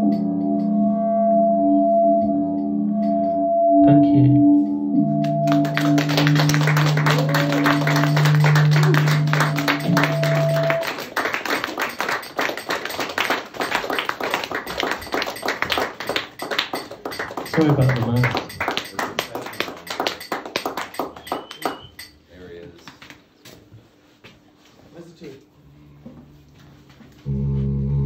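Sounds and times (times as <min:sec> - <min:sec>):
electronic drone: 0:00.0 - 0:11.1
audience applauding: 0:05.2 - 0:22.1.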